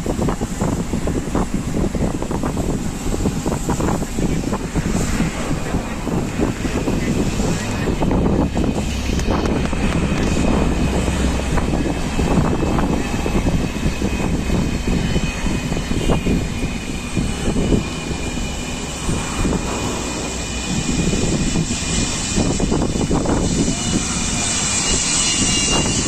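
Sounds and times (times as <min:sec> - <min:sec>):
jet engine roar: 0:00.0 - 0:26.0
thin high whine: 0:10.2 - 0:26.0.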